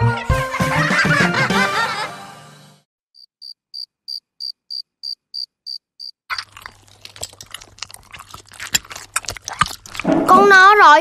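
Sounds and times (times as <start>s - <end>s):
music: 0.0s - 2.9s
cricket chirping: 3.2s - 6.2s.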